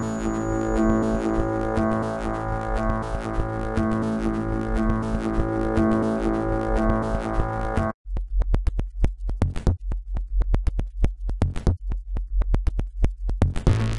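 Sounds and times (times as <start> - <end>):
sustained synthesizer chord: 0.0 - 8.0
sharp clicks rhythm: 0.0 - 13.8
deep bass pulse: 0.0 - 13.9.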